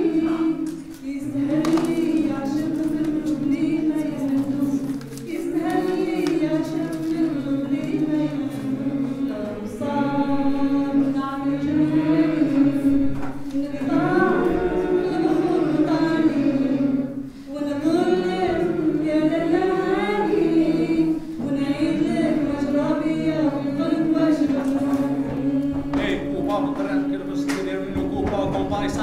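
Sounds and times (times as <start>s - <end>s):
group singing a cappella: 0.0s - 29.0s
singers breathing: 17.2s - 17.6s.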